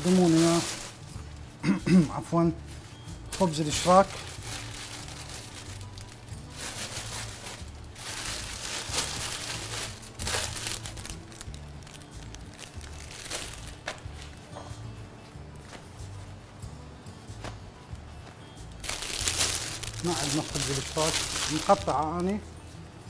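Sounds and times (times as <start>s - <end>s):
flatbread crinkling: 3.4s - 14.4s, 18.8s - 22.4s.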